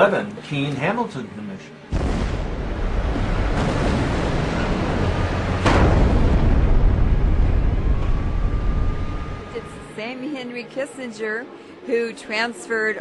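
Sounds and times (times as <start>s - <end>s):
deep rumbling of building collapsing: 1.9s - 9.6s.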